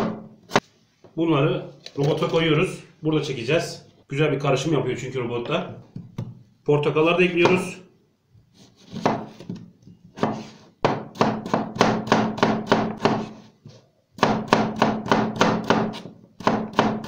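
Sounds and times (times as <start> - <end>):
knife chopping on plastic board: 8.9 - 13.4, 14.2 - 17.0.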